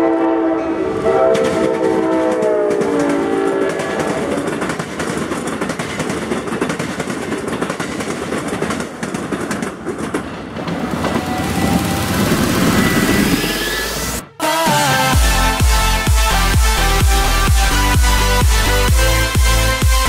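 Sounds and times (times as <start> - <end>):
passing train rushing noise: 0.0 - 14.8
train wheels clattering over rails: 1.3 - 13.5.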